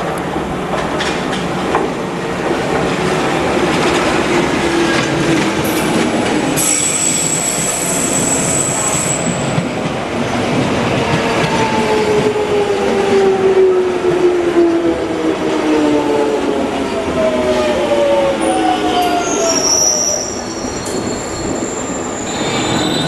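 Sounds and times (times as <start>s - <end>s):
train wheels rumbling over rails: 0.0s - 19.3s
high steady squeal: 6.6s - 9.6s, 18.5s - 23.0s.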